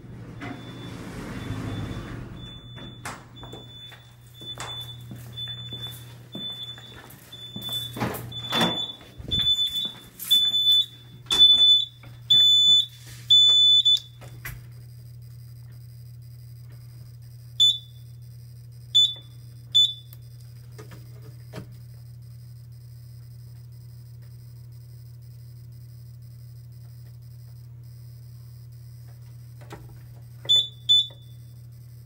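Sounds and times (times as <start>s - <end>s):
steady electrical hum: 0.0s - 32.0s
fire alarm sounder beeping: 0.1s - 32.0s
control panel short beeps: 6.6s - 14.2s, 17.6s - 18.0s, 19.0s - 20.2s, 30.5s - 31.5s.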